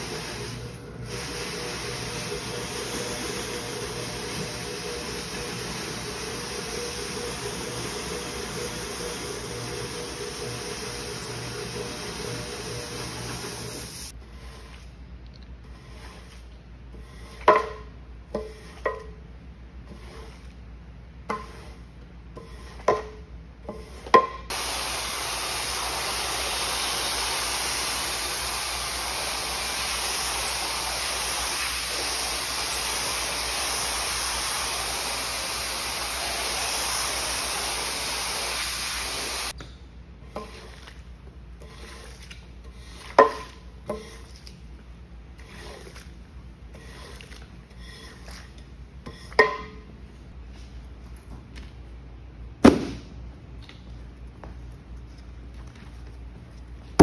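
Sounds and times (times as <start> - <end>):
water spray hissing onto rug: 0.0 - 14.1, 24.5 - 39.6
squeegee strokes on wet rug: 15.7 - 17.4, 45.3 - 48.6.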